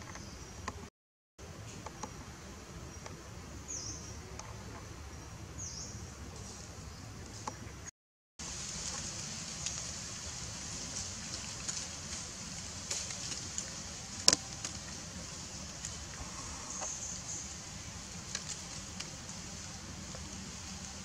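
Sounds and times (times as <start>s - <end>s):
steady high hiss: 1.4s - 21.0s
small clicks and crackles: 8.7s - 21.0s.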